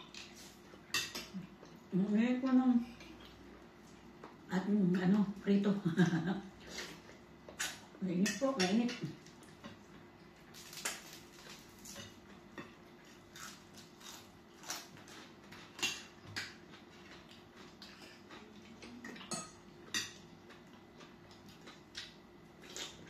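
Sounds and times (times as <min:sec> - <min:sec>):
cutlery clinking on plates: 0:19.0 - 0:20.2.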